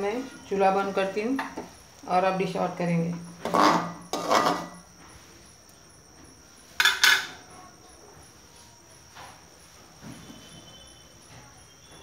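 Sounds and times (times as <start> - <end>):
metal spoon scraping a pan: 3.4 - 4.8.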